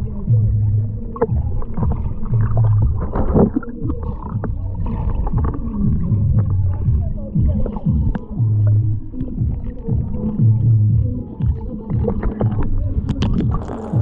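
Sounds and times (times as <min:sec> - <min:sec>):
underwater clicks: 0:00.0 - 0:14.0
underwater low rumble: 0:00.0 - 0:14.0
water gurgling: 0:00.0 - 0:14.0.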